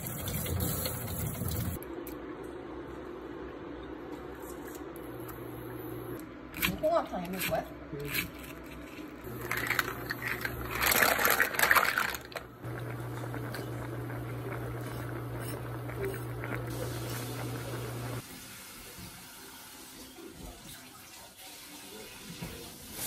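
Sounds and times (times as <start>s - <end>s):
pot boiling and bubbling: 0.0s - 1.8s, 9.2s - 18.4s.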